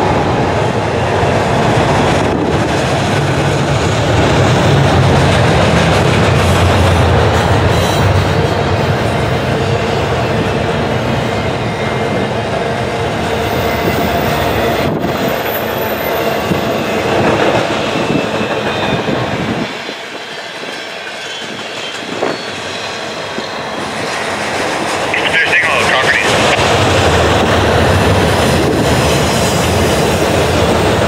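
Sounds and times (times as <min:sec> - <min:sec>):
train wheels clacking on rails: 0:00.0 - 0:25.2, 0:26.3 - 0:31.0
thin wheel squeal: 0:21.2 - 0:22.9.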